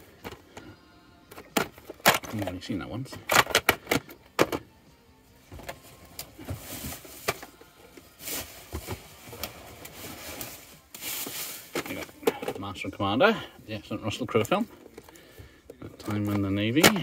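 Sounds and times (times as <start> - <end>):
plastic tape cases clacking: 1.3 - 4.7, 14.3 - 17.0
scrapes and rustles of handling: 5.6 - 12.9.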